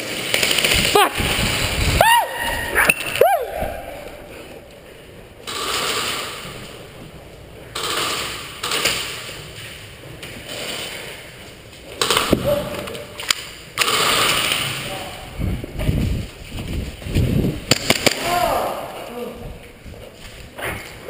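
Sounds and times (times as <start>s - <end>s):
rustling movement: 14.2s - 18.1s.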